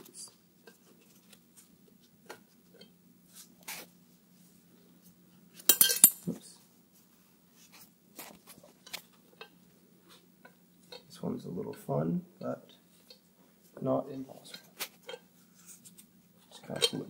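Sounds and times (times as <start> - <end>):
metal on metal clatter: 5.7 - 6.3
metal parts clinking by hand: 5.7 - 6.3.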